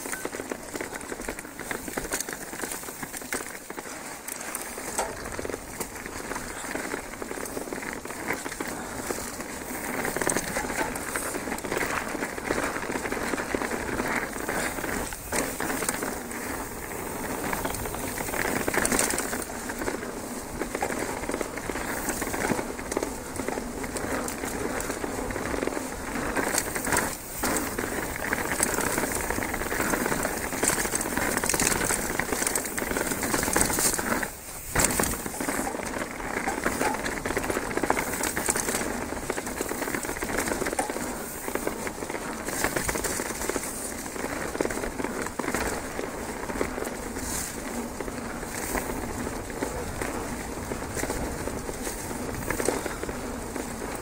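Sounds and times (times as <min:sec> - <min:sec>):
bike tyres rolling on leafy dirt: 0:00.0 - 0:54.0.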